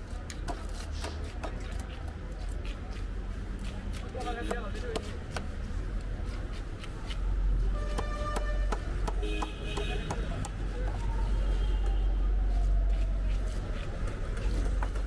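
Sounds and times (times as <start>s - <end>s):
traffic rumble: 0.0s - 15.0s
vehicle horn toots: 7.7s - 10.2s.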